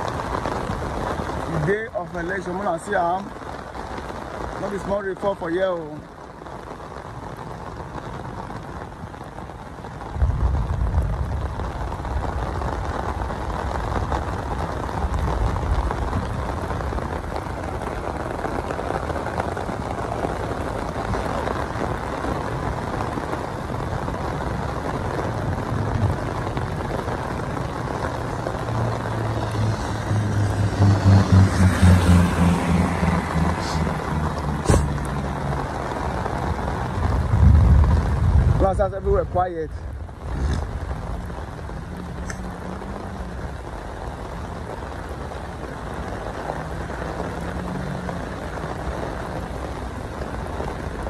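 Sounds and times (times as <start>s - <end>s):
heavy rain hissing: 0.0s - 51.0s
vehicle engine on wet road: 0.0s - 51.0s
low rumble: 25.4s - 44.6s.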